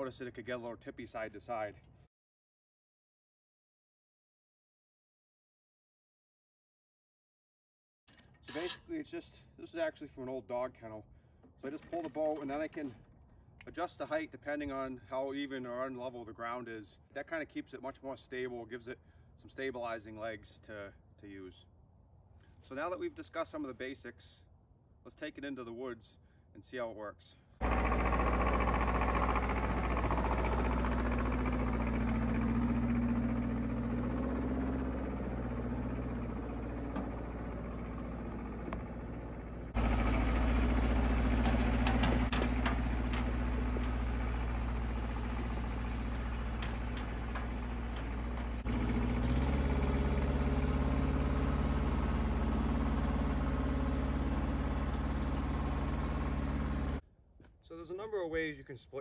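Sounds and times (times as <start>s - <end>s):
tractor engine running steadily: 27.6s - 57.0s.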